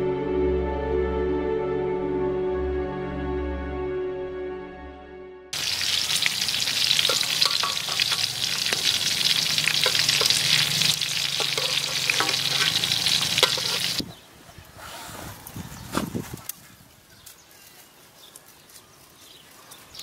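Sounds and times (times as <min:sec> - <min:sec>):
food sizzling in oil: 0:05.6 - 0:14.0
metal spatula scraping pan: 0:07.0 - 0:14.0.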